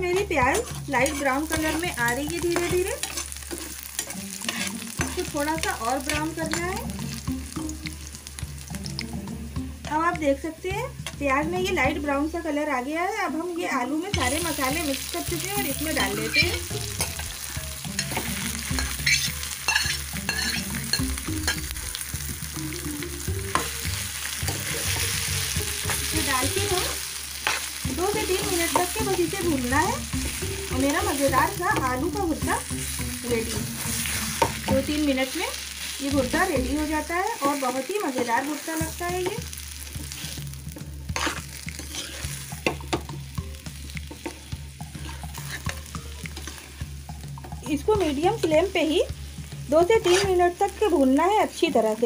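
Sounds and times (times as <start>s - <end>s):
potato sizzling in oil: 0.0s - 52.0s
metal spoon scraping pan: 0.2s - 6.7s, 15.9s - 17.2s, 17.8s - 21.7s, 26.7s - 27.7s, 41.1s - 43.0s, 44.1s - 48.6s, 50.0s - 50.4s.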